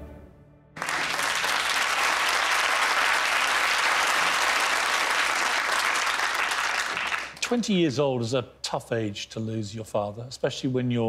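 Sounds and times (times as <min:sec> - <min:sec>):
audience applauding: 0:00.8 - 0:07.4.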